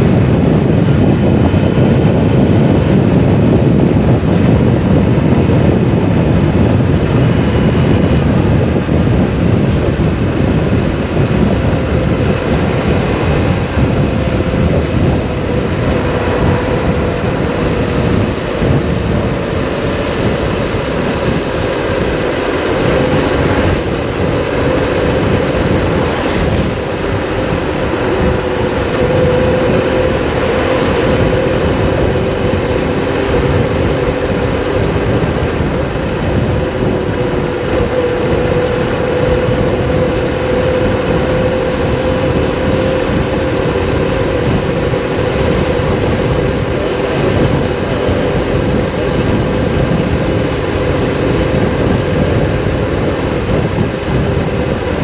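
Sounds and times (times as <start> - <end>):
motorcycle engine cruising: 0.0 - 55.0
wind rumble on microphone: 0.0 - 55.0.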